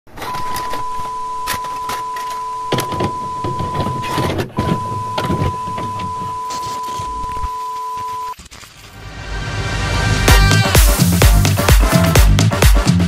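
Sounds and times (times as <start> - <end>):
test tone beep: 0.2 - 8.4
static crackles and distorted noise: 6.4 - 9.4.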